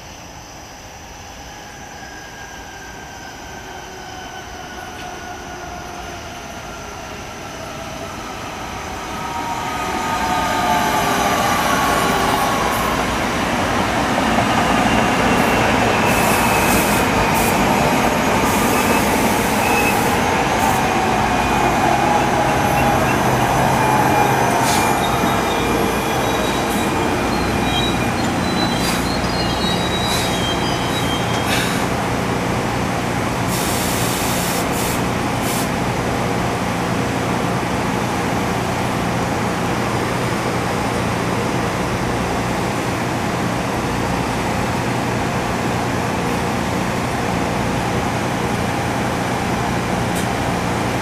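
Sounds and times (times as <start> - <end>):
train rolling rumble and whine: 0.0 - 51.0
brake squeals: 24.2 - 32.0
air hisses: 28.8 - 29.1, 33.5 - 35.7.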